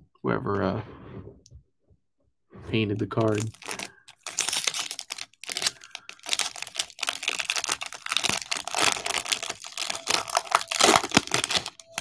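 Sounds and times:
card pack wrapper crinkling: 3.1 - 12.0.

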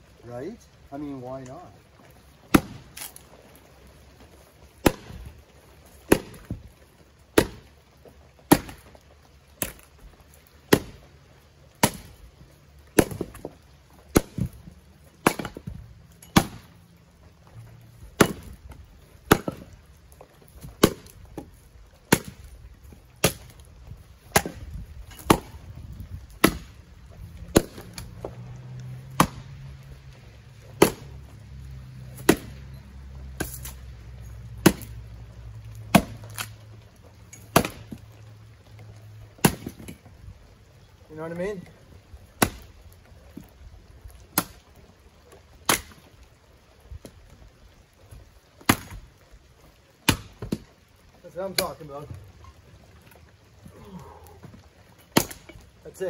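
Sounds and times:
axe chopping wood: 2.5 - 3.2, 4.8 - 5.3, 6.0 - 6.7, 7.3 - 7.7, 8.5 - 9.0, 9.6 - 9.9, 10.7 - 11.1, 11.8 - 12.2, 12.9 - 14.6, 15.2 - 16.7, 18.1 - 19.8, 20.5 - 21.5, 22.1 - 22.5, 23.2 - 25.7, 26.3 - 26.8, 27.4 - 28.4, 29.1 - 29.6, 30.8 - 31.3, 32.1 - 32.6, 33.4 - 33.8, 34.6 - 35.0, 35.8 - 36.6, 37.4 - 38.0, 39.4 - 40.1, 42.4 - 42.8, 44.3 - 44.6, 45.6 - 46.1, 48.6 - 49.1, 50.0 - 50.7, 51.5 - 51.8, 54.4 - 55.7.

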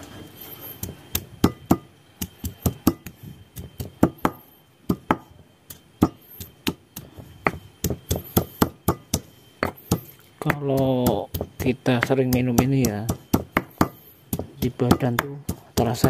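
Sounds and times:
stone pestle pounding in mortar: 0.8 - 16.0.

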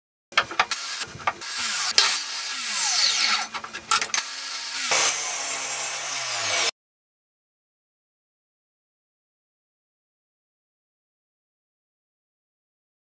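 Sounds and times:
mitre saw cutting wood: 0.6 - 6.8.

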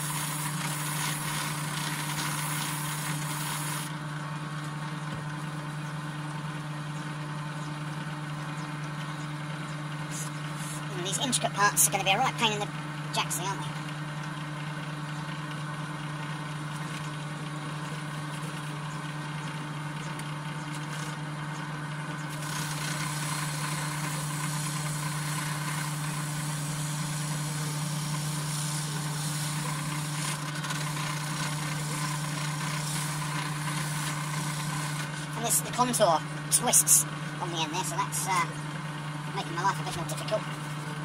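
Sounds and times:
electric grinder humming: 0.0 - 4.0, 22.3 - 36.0
abrasive hissing on metal: 2.3 - 3.9.

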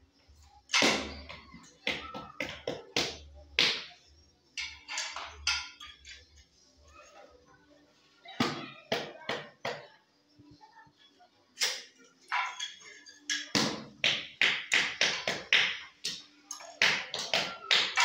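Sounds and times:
metal trowel tapping tiles: 4.6 - 6.4, 11.6 - 18.0.

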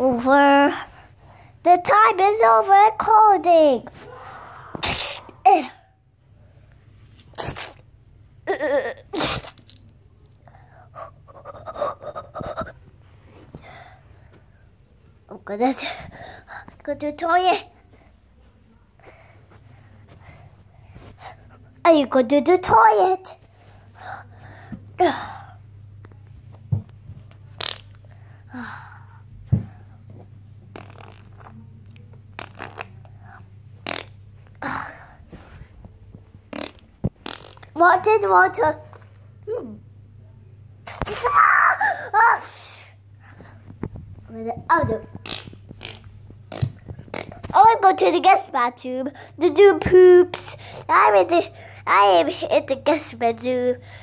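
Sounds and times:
steady low hum: 0.0 - 54.0
child sneezing: 4.0 - 5.8, 7.3 - 7.8, 8.5 - 9.8, 40.8 - 42.9
breathy puffs: 10.4 - 14.5, 15.8 - 16.8.

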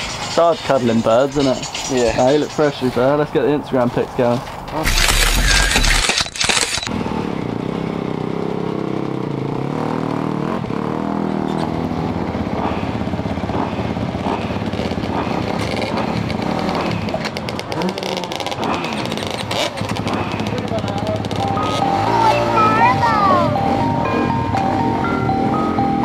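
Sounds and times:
motorcycle engine idling: 11.3 - 22.3.

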